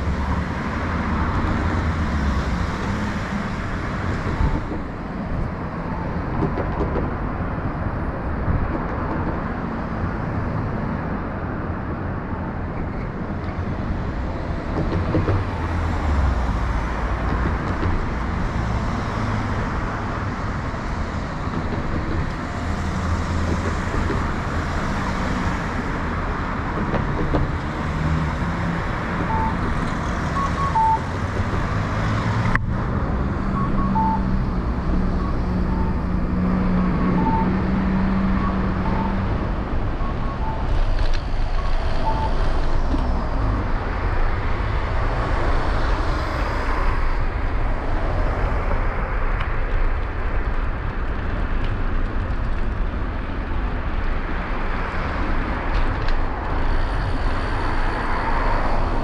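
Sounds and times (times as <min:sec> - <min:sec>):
road traffic rumble and hiss: 0:00.0 - 0:59.0
vehicle engine hum: 0:00.0 - 0:59.0.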